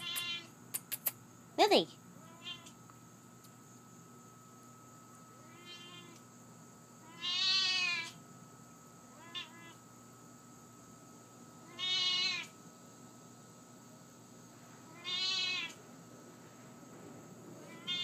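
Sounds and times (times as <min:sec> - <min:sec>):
cat meowing: 0:00.0 - 0:00.5, 0:02.2 - 0:02.8, 0:05.4 - 0:06.2, 0:07.0 - 0:08.2, 0:09.1 - 0:09.8, 0:11.7 - 0:12.5, 0:14.9 - 0:15.8, 0:17.7 - 0:18.0.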